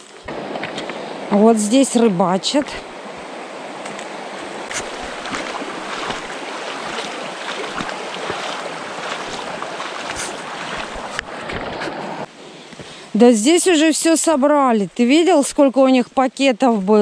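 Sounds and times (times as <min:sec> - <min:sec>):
river rushing over pebbles: 0:00.0 - 0:12.3
footsteps splashing in water: 0:03.8 - 0:12.0.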